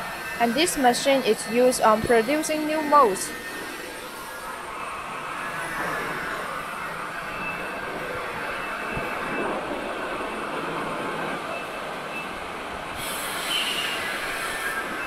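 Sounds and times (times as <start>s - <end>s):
machining center running: 0.0s - 12.8s
hiss: 12.9s - 15.0s.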